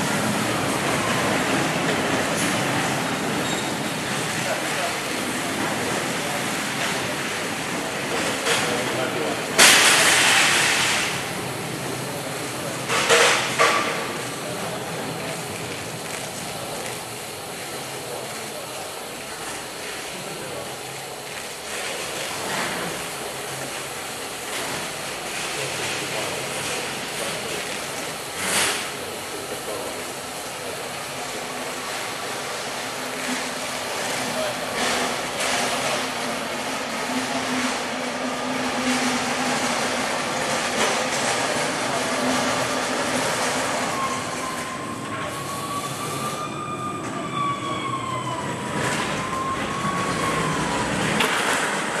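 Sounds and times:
wrapping machine running: 14.4 - 46.1.

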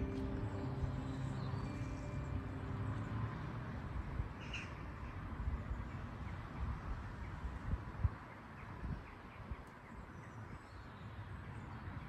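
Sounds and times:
music: 0.0 - 3.7.

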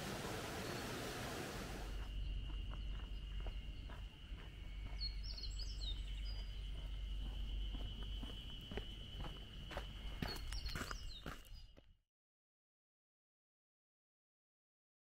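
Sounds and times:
continuous thin high tone: 0.0 - 11.8
small bird chirping: 1.8 - 11.8.

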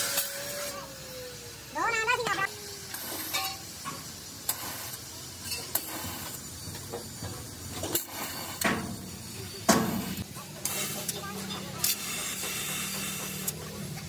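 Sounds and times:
steady hiss: 0.0 - 14.0
hand tools clinking on metal: 5.4 - 5.9.

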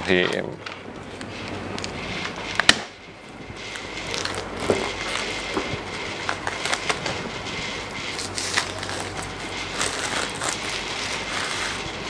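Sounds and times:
plastic wrap crinkling: 3.7 - 12.0.

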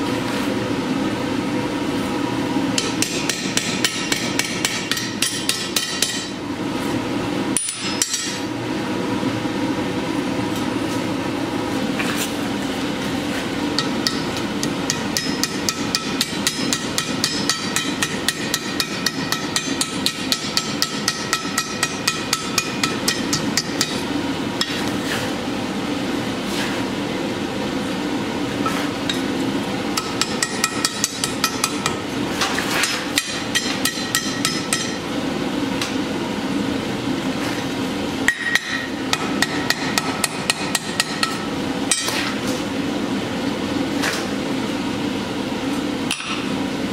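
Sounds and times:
hammer striking sheet steel: 2.8 - 6.4, 13.8 - 24.9, 30.0 - 35.0, 38.3 - 42.4.

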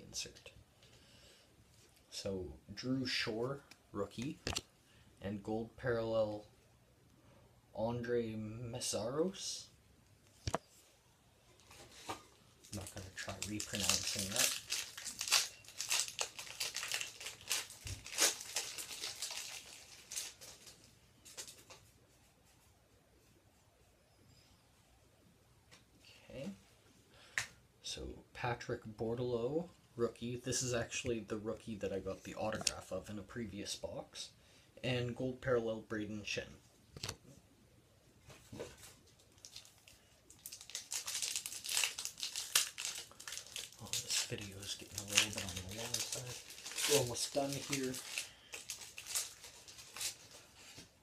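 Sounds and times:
wrapper crinkling and tearing: 12.6 - 21.8, 38.8 - 50.9.

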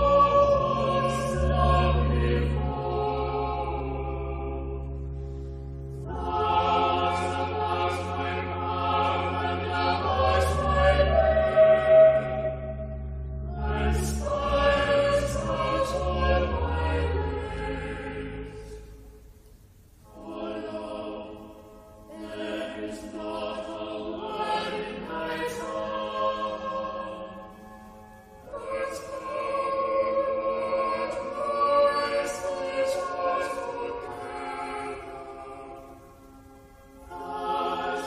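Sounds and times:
choir singing: 0.0 - 19.1, 20.0 - 38.0.

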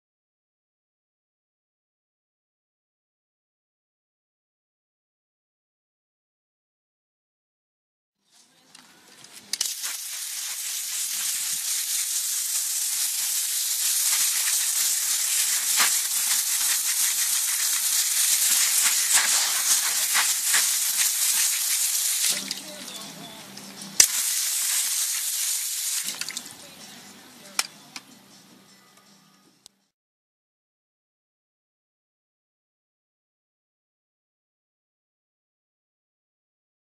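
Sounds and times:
water jet spraying: 9.4 - 23.2, 24.0 - 26.6.

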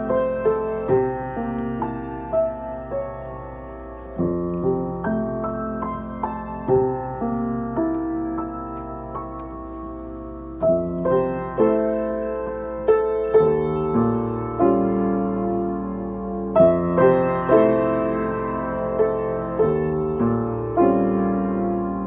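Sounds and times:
piano chords ringing: 0.0 - 22.0.

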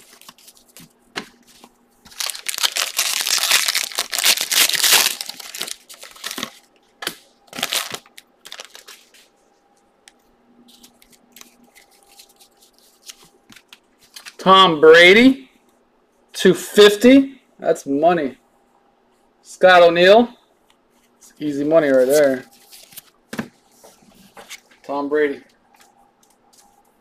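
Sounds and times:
cards rustling: 0.0 - 9.3, 10.7 - 14.4, 21.3 - 24.8
foil wrappers crinkling and tearing: 0.0 - 9.3.

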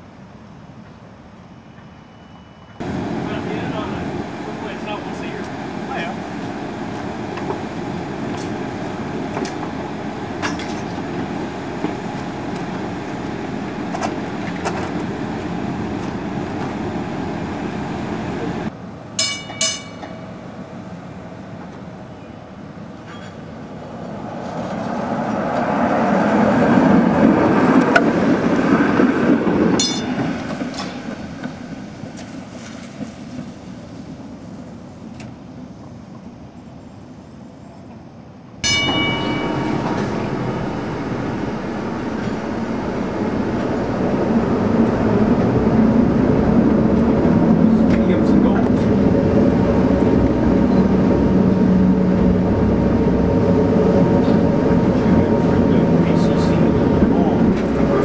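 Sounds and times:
streetcar rolling on rails: 0.0 - 58.0
streetcar running noise: 0.0 - 58.0
streetcar bell ringing: 1.7 - 20.7, 29.6 - 31.6, 38.6 - 58.0.

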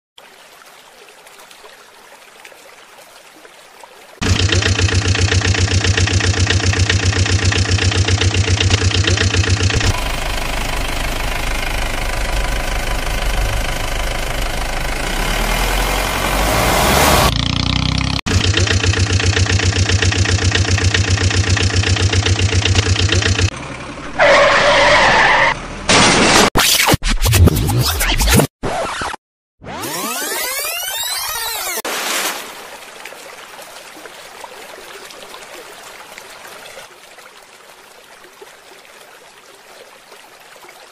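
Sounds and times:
truck engine chugging and revving: 4.2 - 26.2.

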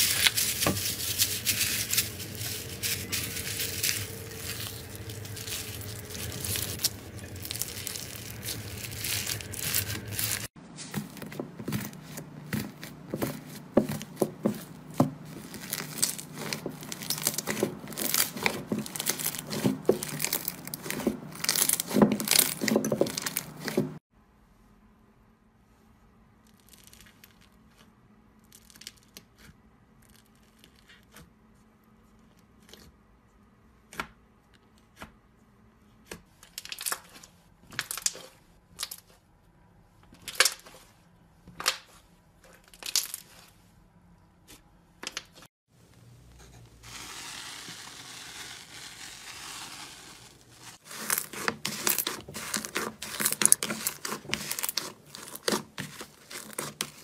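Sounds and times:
slime crackling and popping: 3.5 - 10.5, 15.3 - 23.8, 46.9 - 57.0.

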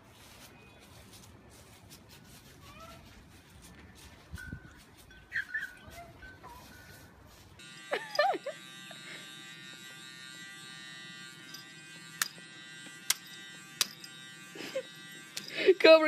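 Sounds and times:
electric motor buzz: 7.6 - 16.0.

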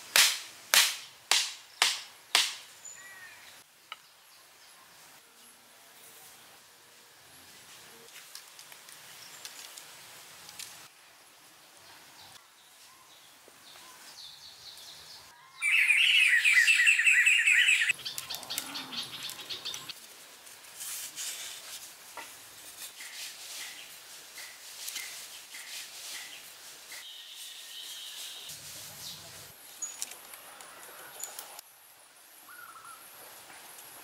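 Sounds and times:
soft bird chirps: 11.9 - 19.9
loud fast bird trilling: 15.6 - 17.9.

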